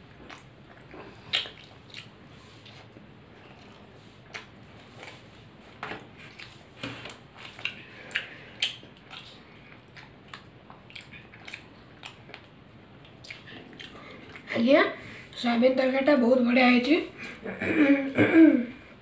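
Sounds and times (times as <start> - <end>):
wet chewing and lip smacks: 0.0 - 14.5.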